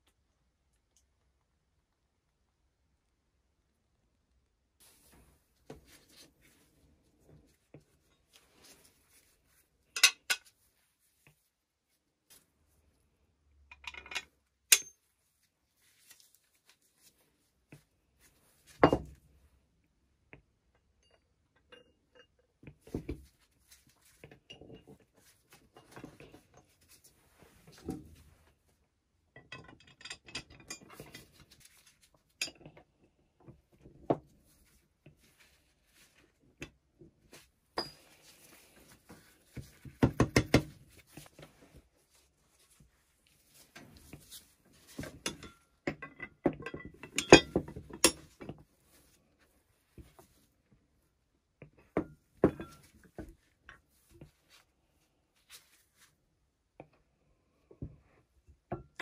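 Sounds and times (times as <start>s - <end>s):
steel parts clinking: 13.7s - 15.0s.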